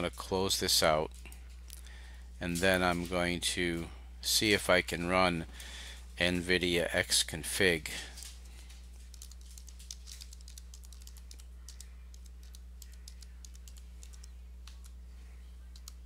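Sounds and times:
steady low hum: 0.0 - 16.0
keyboard typing: 9.0 - 15.0, 15.7 - 16.0.

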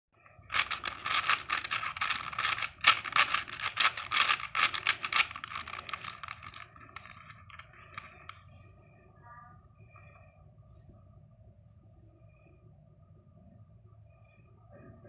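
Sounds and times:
puzzle cube clicking: 0.5 - 8.4.

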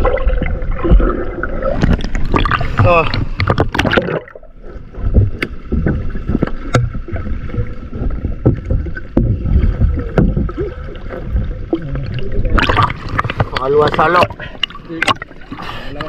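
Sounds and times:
underwater rumble of moving water: 0.0 - 16.0
sharp clicks and knocks: 8.0 - 10.7.

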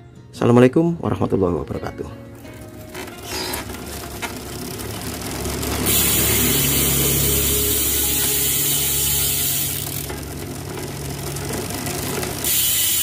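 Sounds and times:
bicycle chain running: 2.4 - 13.0
bicycle freehub ratchet clicking: 2.8 - 13.0.

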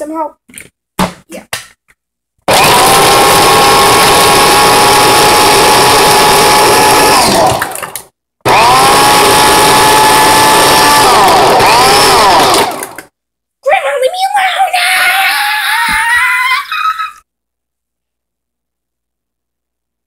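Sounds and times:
blender motor running: 2.5 - 13.1.

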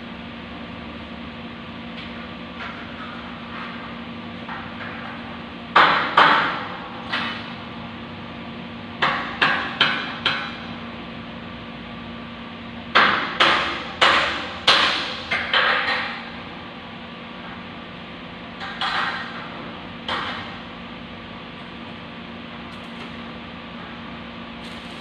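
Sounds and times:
steady low hum: 16.1 - 25.0.

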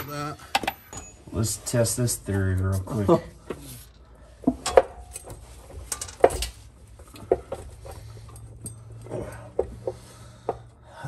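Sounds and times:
metal clunks and clicks: 0.0 - 1.2, 4.4 - 10.7.

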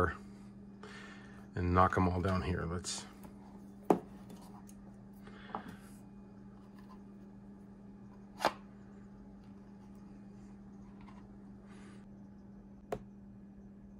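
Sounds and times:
steady hum: 0.0 - 13.9.

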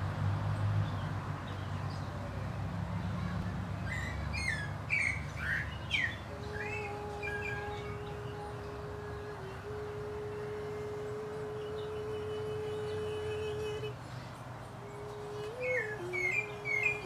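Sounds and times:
wild birds chirping: 3.1 - 9.5, 10.1 - 17.0.

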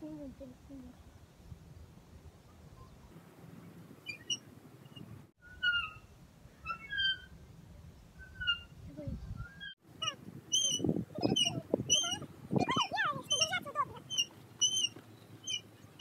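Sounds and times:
metal swing squeaking: 4.1 - 7.3, 8.2 - 8.8, 9.4 - 16.0.

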